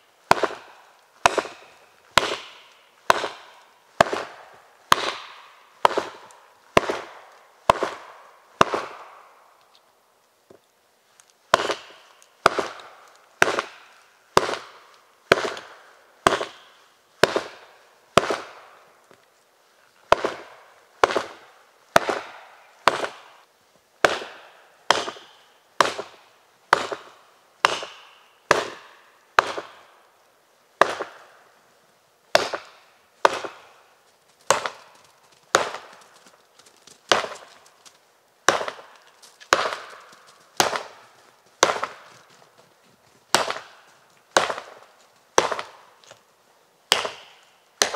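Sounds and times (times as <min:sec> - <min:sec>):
hatchet chopping tree trunk: 0:00.2 - 0:09.4, 0:11.5 - 0:18.8, 0:20.1 - 0:23.4, 0:24.0 - 0:30.0, 0:30.8 - 0:31.4, 0:32.3 - 0:33.8, 0:34.5 - 0:36.0, 0:37.1 - 0:37.5, 0:38.4 - 0:42.1, 0:43.3 - 0:46.2, 0:46.9 - 0:47.9.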